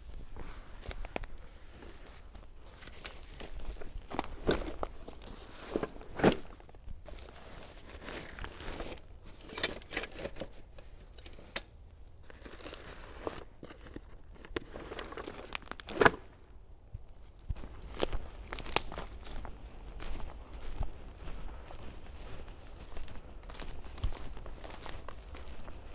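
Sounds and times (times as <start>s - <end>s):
footsteps on dry grass: 0.0s - 9.5s, 12.2s - 25.9s
backpack rustling and knocking: 4.3s - 5.0s.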